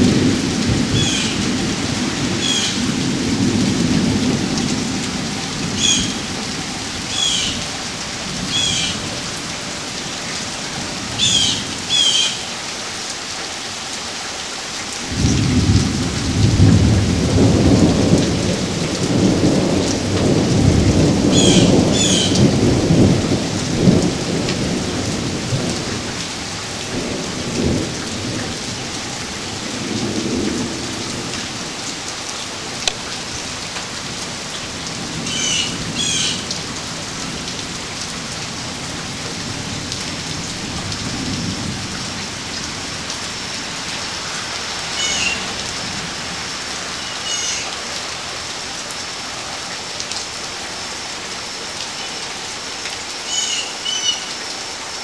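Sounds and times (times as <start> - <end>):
thunder rumbling: 0.0 - 9.4, 15.0 - 31.8
steady rain: 0.0 - 55.0.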